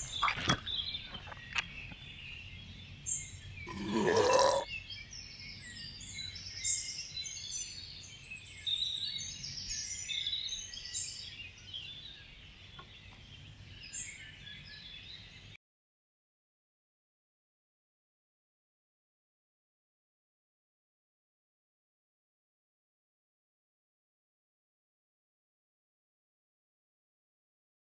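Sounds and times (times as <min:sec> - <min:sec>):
small birds chirping: 0:00.0 - 0:15.6
rising burp: 0:03.7 - 0:04.7.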